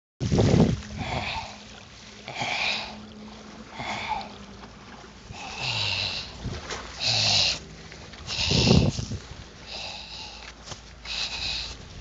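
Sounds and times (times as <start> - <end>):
heavy wheezy breathing: 5.3 - 6.4, 7.0 - 7.6, 8.2 - 11.9.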